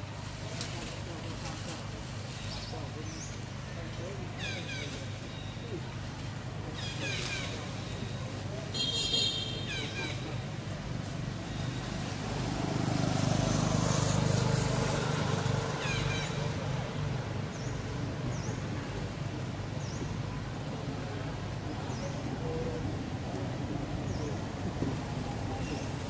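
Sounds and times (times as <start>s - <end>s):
vehicle passing rumble: 10.1s - 26.0s.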